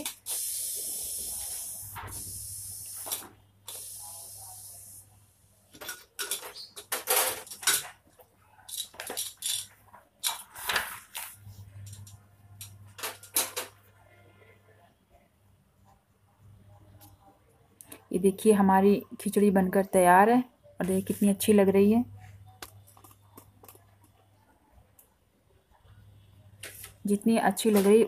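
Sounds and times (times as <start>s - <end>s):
steam hissing from pressure cooker: 0.0s - 3.0s.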